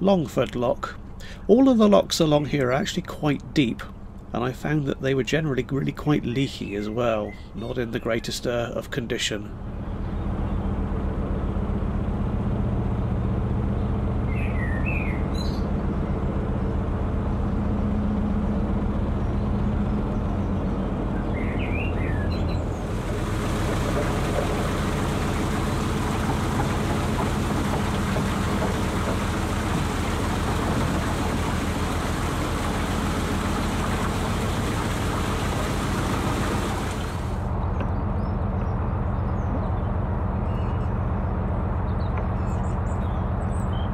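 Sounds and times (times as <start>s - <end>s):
water rushing into lock: 0.0s - 8.8s, 22.4s - 37.5s
diesel engine running: 9.4s - 43.7s
bird chirps: 21.2s - 22.8s.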